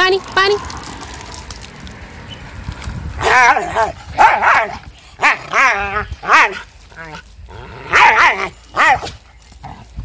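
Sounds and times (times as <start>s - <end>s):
dog barking and yelping: 3.2s - 7.2s, 7.8s - 9.4s.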